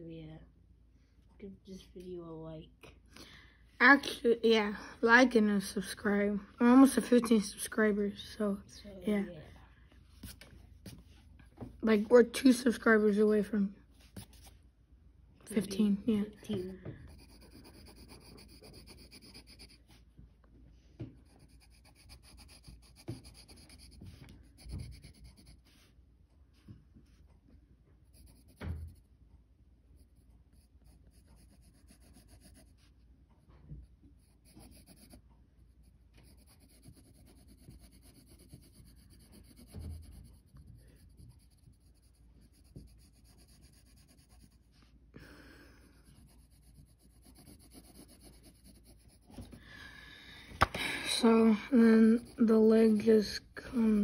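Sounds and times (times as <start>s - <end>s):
pencil scratching on paper: 5.0s - 9.3s, 11.8s - 14.6s, 15.5s - 20.1s, 21.0s - 26.0s, 28.0s - 29.1s, 29.9s - 33.0s, 33.7s - 44.9s, 45.6s - 49.6s, 50.6s - 54.0s.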